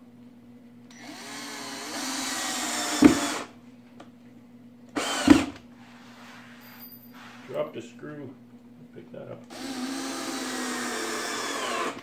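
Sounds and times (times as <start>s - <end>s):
cordless drill motor whining: 0.9s - 3.5s, 5.0s - 5.6s, 9.5s - 12.0s.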